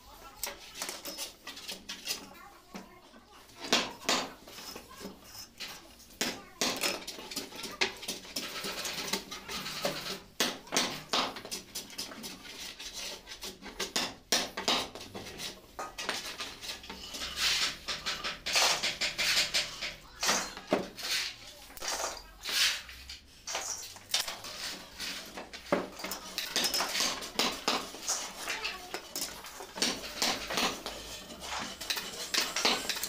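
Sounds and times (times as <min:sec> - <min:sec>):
wooden pieces clattering on workbench: 0:06.6 - 0:33.0.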